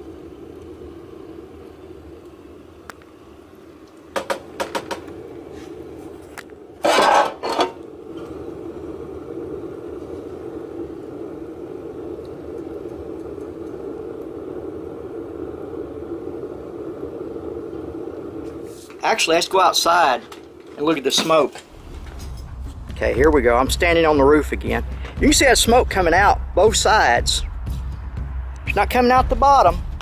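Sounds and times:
stove fire roaring: 0.0 - 30.0
metallic clatter: 6.8 - 7.8, 20.2 - 22.9.

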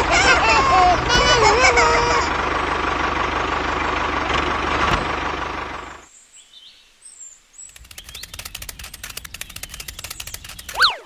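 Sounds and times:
toy tractor engine: 0.0 - 6.1, 7.7 - 11.0
faint bird chirps: 6.1 - 8.5
fast light clicks: 7.6 - 11.0.

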